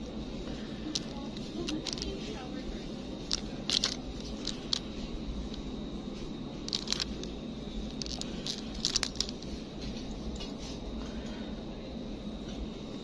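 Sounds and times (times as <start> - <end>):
steady low hum: 0.0 - 13.0
plastic packaging crinkling: 3.2 - 5.0, 6.6 - 9.5.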